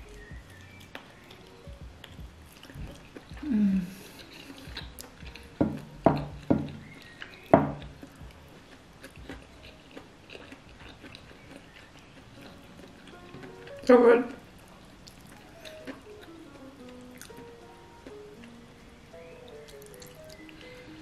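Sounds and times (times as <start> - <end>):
chewing and tearing food: 0.4 - 3.4, 4.0 - 5.6, 6.8 - 13.9, 14.7 - 18.6, 19.5 - 20.6
table knocking: 5.6 - 6.8, 7.5 - 8.0.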